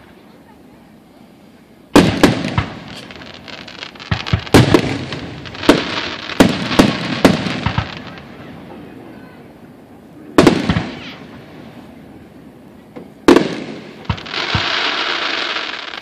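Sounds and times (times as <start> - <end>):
fireworks bangs echoing: 1.9 - 9.1, 10.3 - 11.9, 13.0 - 16.0.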